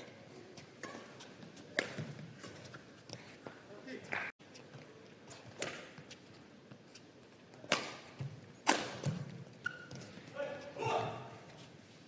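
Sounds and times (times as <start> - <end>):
rackets striking shuttlecock: 5.6 - 6.0, 7.6 - 10.2.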